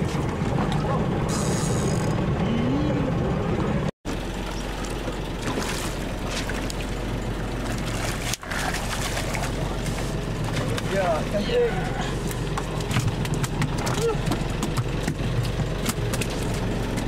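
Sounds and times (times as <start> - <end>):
boat engine running: 0.0 - 17.0
fish splashing water: 4.1 - 11.3.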